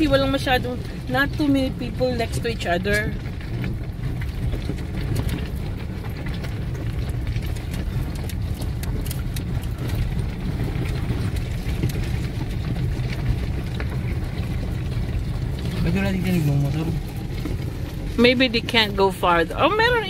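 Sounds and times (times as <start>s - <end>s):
gravel crackling under wheels: 0.0s - 20.0s
low rumble of engine and tyres: 0.0s - 20.0s.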